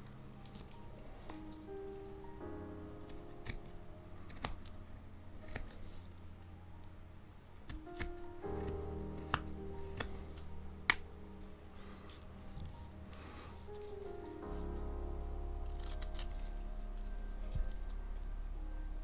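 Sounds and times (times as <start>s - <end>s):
soft background music: 0.0s - 19.0s
knife slicing wood: 7.7s - 11.0s, 15.7s - 16.5s.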